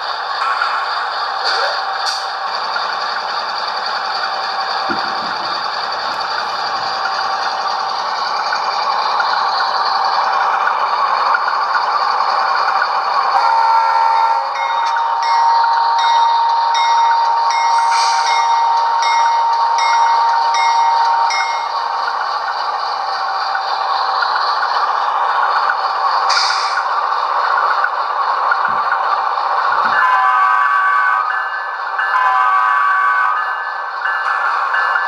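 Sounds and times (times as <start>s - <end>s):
model diesel engine drone: 0.0s - 35.0s
locomotive bell ringing: 13.3s - 23.6s, 29.8s - 35.0s.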